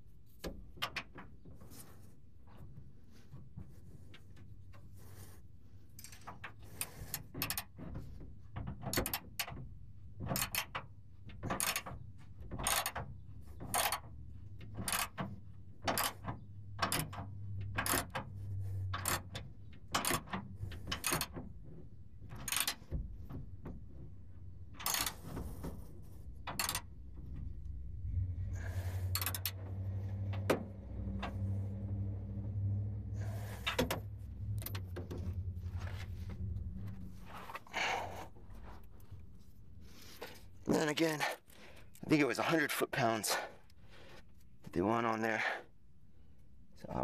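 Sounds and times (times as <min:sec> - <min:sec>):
ratchet wrench clicking: 0:29.1 - 0:29.6.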